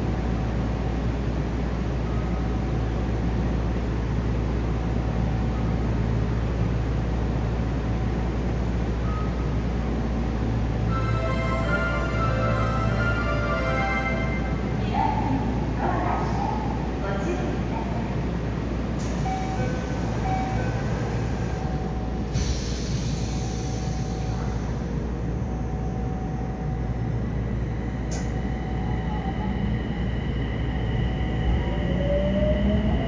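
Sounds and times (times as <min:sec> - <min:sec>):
train wheels rumbling on rail: 0:14.4 - 0:33.0
rising motor whine: 0:28.6 - 0:33.0.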